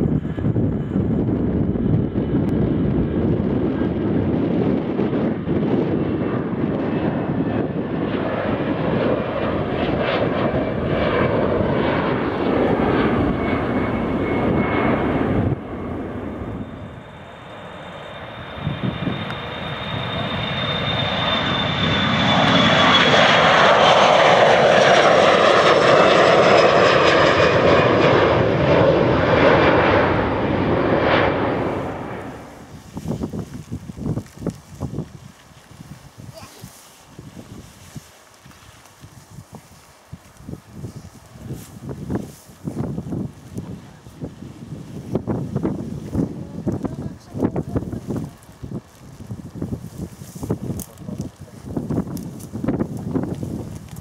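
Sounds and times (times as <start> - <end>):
jet engines rumbling: 0.0 - 54.0
jet taking off with whine: 0.0 - 54.0.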